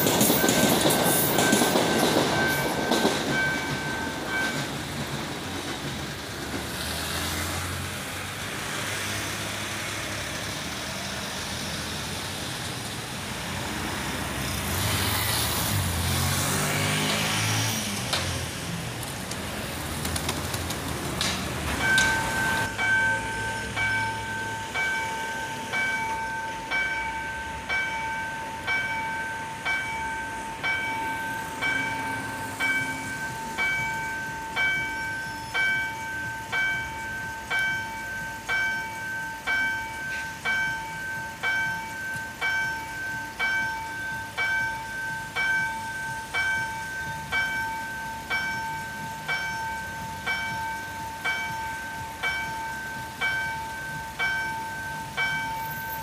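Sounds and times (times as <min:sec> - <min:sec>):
continuous ringing tone: 0:00.0 - 0:05.1, 0:21.8 - 0:56.0
level crossing bell striking: 0:21.8 - 0:56.0.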